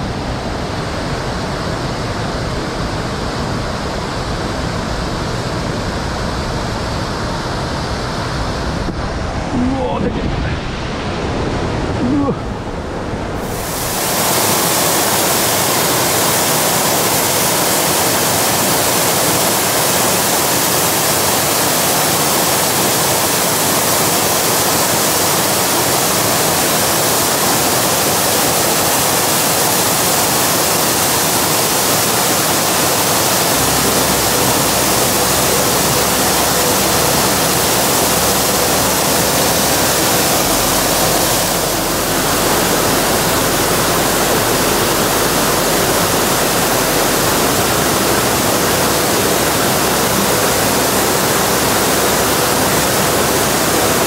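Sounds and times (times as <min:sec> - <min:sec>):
low rumble: 0:00.0 - 0:14.0
mountain stream rushing: 0:00.0 - 0:54.0.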